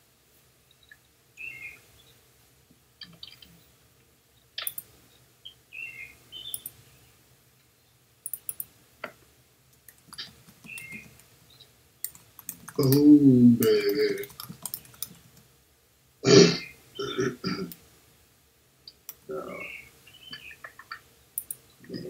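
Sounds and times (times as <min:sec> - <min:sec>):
computer mouse and key clicks: 0:04.6 - 0:04.9, 0:06.4 - 0:06.8, 0:08.2 - 0:09.2, 0:09.8 - 0:11.3, 0:12.0 - 0:15.5, 0:20.6 - 0:21.6.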